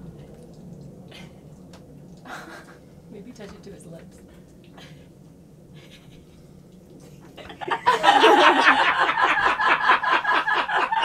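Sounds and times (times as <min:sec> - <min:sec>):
person laughing: 0:02.3 - 0:02.8, 0:05.8 - 0:06.3, 0:07.0 - 0:11.0.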